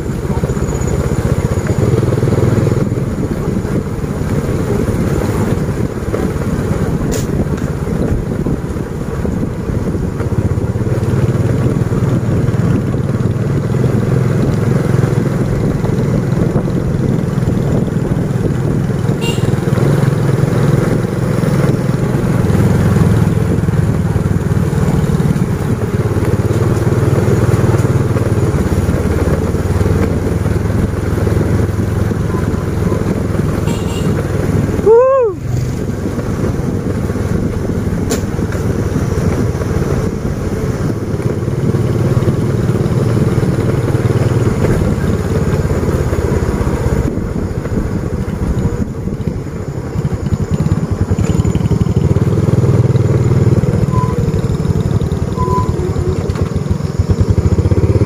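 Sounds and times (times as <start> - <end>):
motorcycle engine running: 0.0 - 58.0
loud rising pitched call: 34.8 - 35.4.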